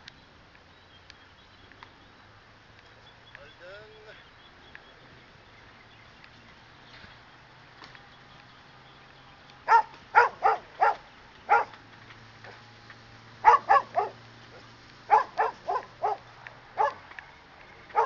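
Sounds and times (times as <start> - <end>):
dog barking sharply: 9.7 - 11.7, 13.4 - 14.2, 15.1 - 16.2, 16.8 - 17.0.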